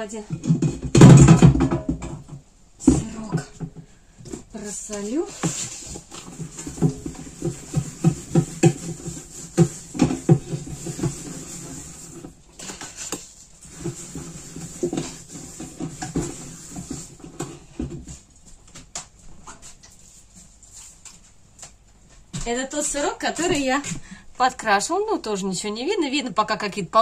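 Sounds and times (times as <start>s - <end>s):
hands thumping and rubbing cheese: 5.5s - 22.0s.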